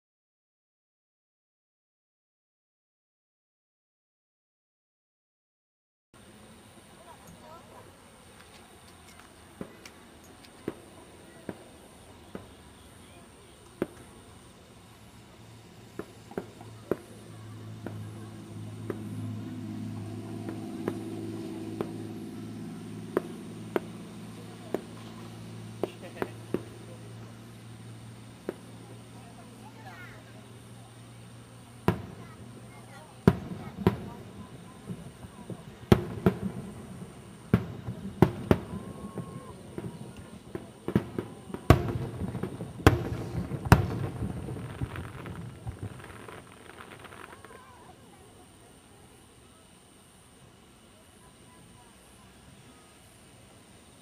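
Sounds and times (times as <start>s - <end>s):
distant fireworks popping: 6.2s - 54.0s
steady low hum: 10.0s - 46.7s
vehicle engine: 15.0s - 38.6s.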